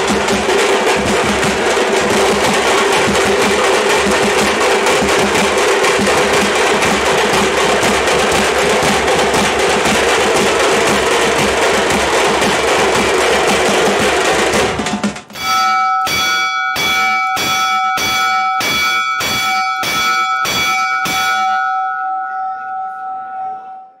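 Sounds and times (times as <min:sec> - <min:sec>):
drumming: 0:00.0 - 0:23.3
bell struck: 0:15.3 - 0:24.0
crowd noise: 0:20.0 - 0:24.0.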